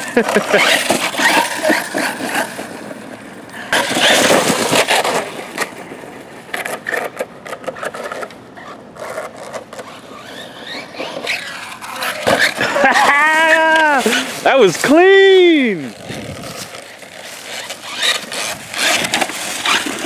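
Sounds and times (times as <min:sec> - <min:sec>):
tyres rustling over leaves and dirt: 0:09.1 - 0:20.0.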